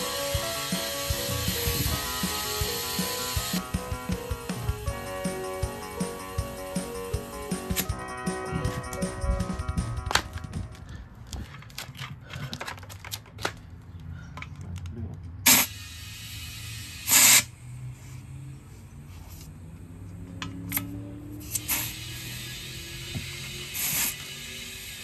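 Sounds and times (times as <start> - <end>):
hissing gas bursts: 0.0 - 7.9, 15.4 - 18.4, 21.4 - 25.0.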